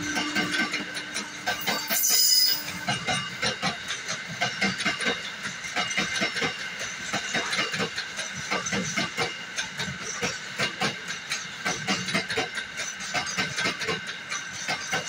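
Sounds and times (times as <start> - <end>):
train wheels clattering over rail joints: 0.0 - 15.0
high squeal: 1.6 - 2.8.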